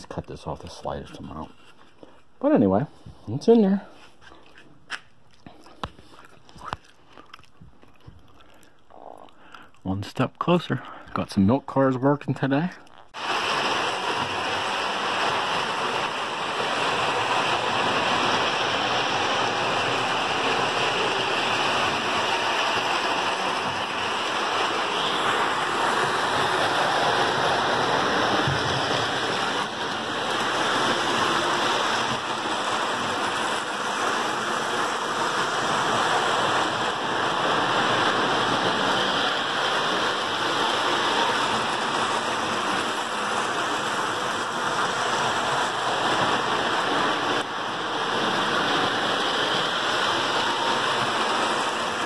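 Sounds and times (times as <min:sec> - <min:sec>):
toy trains running on track: 0:13.2 - 0:52.0.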